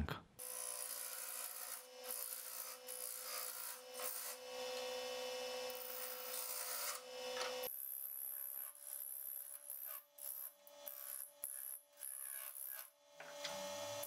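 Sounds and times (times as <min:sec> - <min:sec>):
wood lathe motor whine: 0:01.1 - 0:07.7.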